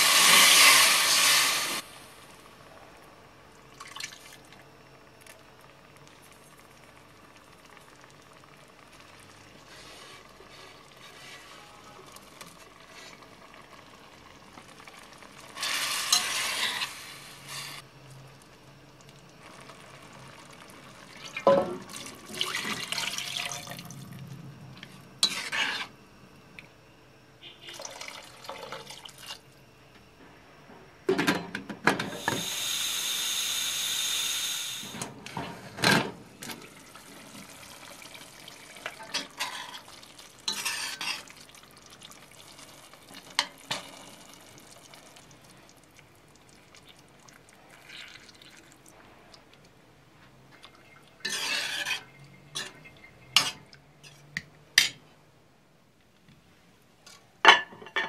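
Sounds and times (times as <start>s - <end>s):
vegetables scraped into a pot: 15.6s - 17.8s, 25.2s - 25.9s, 40.5s - 41.3s, 51.2s - 52.8s
stirring in a pot: 24.8s - 25.9s, 38.7s - 42.4s, 50.6s - 54.4s
water pouring from a jug: 44.6s - 49.0s.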